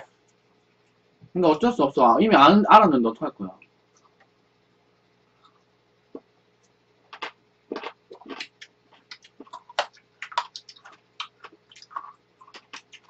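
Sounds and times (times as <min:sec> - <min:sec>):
chewing and mouth smacks: 0:05.4 - 0:13.0.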